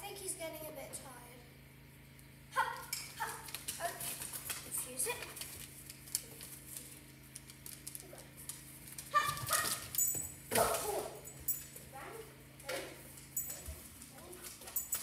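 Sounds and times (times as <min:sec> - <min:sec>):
faint clicks and jingles: 0:09.8 - 0:10.5, 0:11.2 - 0:12.0, 0:13.1 - 0:15.0.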